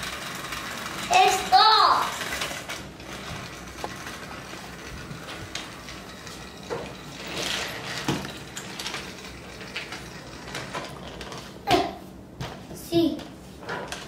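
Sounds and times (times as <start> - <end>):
toy trains clicking on plastic track: 0.0 - 11.4.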